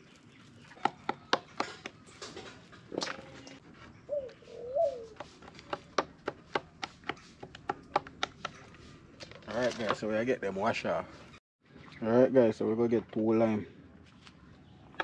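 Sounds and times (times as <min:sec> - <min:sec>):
bird calling: 0:03.1 - 0:05.4
knife chopping on wooden board: 0:05.2 - 0:08.6.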